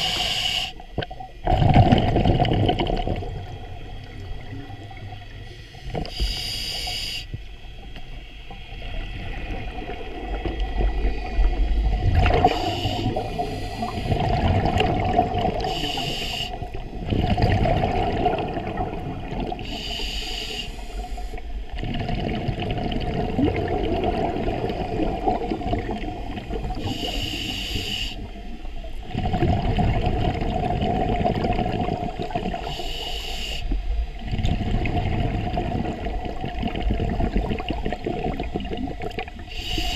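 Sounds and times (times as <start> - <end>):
regulator hissing inhalations: 0.0 - 0.8, 5.5 - 7.5, 12.4 - 14.2, 15.6 - 16.8, 19.6 - 21.5, 26.7 - 28.4, 32.6 - 33.8, 39.5 - 39.9
exhaust bubbling underwater: 1.0 - 6.2, 8.8 - 19.8, 21.6 - 27.4, 28.2 - 32.7, 34.1 - 39.8.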